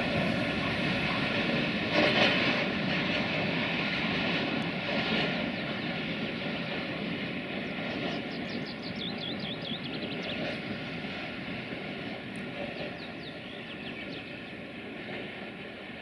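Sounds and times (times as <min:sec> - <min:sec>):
train wheels rumbling on rail: 0:00.0 - 0:16.0
bird chirping: 0:08.3 - 0:10.5.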